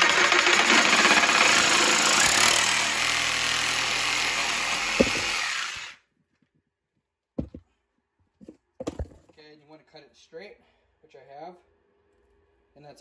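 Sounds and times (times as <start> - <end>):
reciprocating saw cutting pipe: 0.0 - 6.0.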